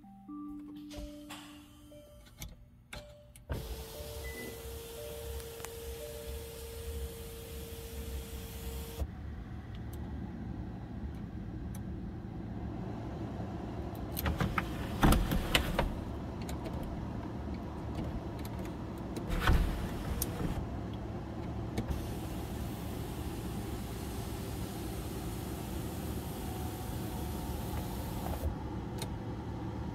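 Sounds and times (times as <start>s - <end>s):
sunroof motor humming: 3.5s - 9.2s, 12.6s - 29.9s.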